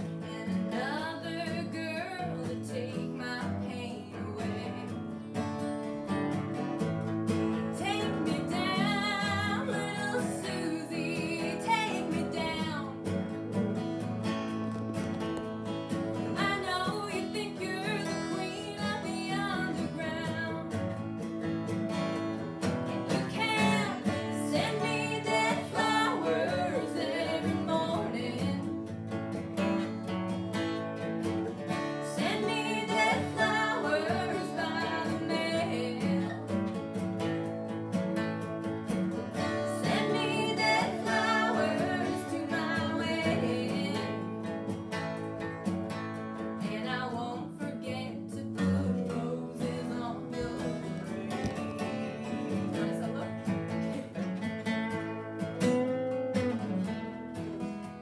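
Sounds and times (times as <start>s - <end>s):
woman singing: 0.0s - 5.2s, 7.6s - 13.1s, 16.2s - 21.0s, 23.0s - 28.9s, 32.0s - 36.7s, 39.4s - 44.6s, 46.6s - 51.2s, 52.5s - 54.1s
acoustic guitars strumming: 0.0s - 58.0s.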